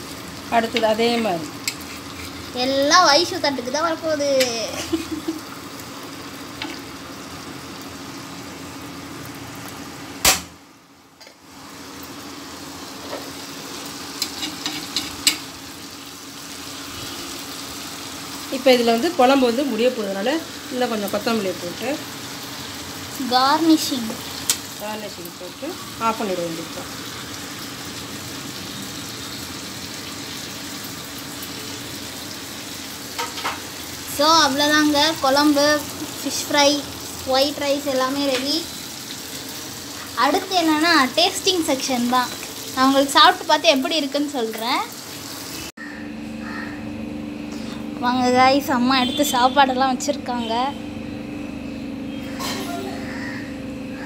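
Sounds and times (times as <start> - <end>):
fish sizzling in oil: 0.0 - 46.7
metal spatula scraping pan: 1.6 - 2.5
steady low hum: 45.8 - 54.0.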